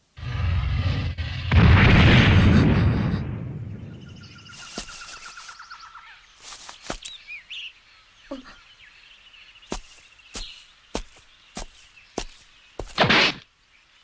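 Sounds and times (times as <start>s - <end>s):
loud crash: 0.3s - 3.7s
birds trilling and chirping: 3.7s - 14.0s.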